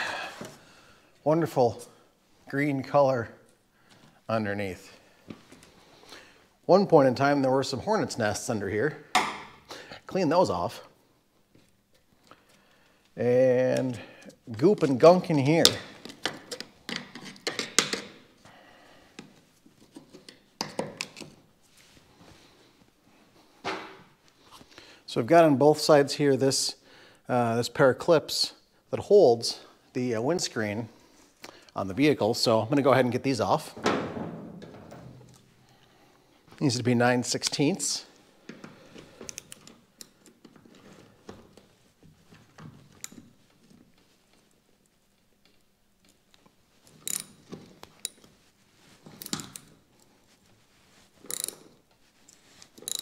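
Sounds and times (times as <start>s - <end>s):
metallic clicks of hand tools: 47.0s - 47.4s, 51.2s - 51.7s, 52.6s - 53.0s.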